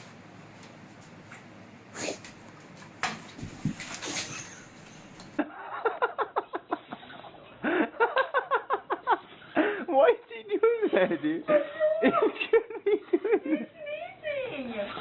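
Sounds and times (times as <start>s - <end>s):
person laughing: 5.4s - 14.1s.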